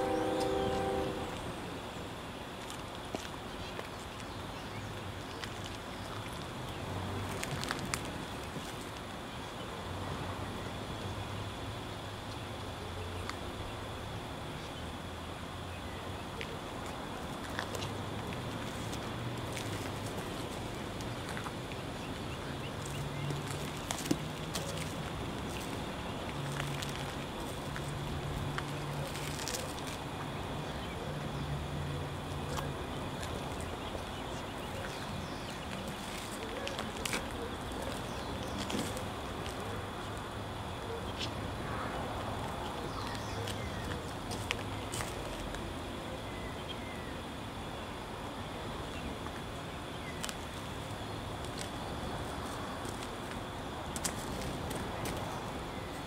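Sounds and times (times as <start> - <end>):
soft hiss: 0.0 - 6.2
steady noise haze: 0.0 - 56.0.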